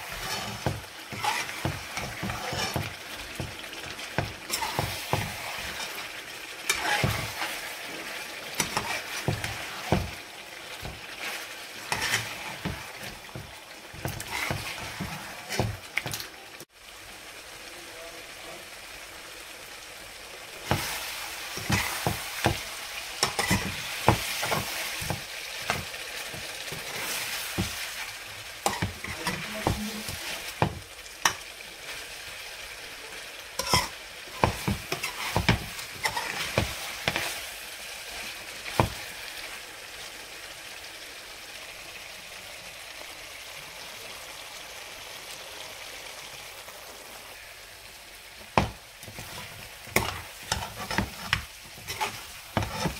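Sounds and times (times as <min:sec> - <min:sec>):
spatula scraping and knocking pan: 0:00.0 - 0:16.2, 0:20.6 - 0:31.4, 0:33.6 - 0:37.5, 0:38.2 - 0:39.1, 0:48.4 - 0:52.9
chicken sizzling in a frying pan: 0:00.0 - 0:52.9.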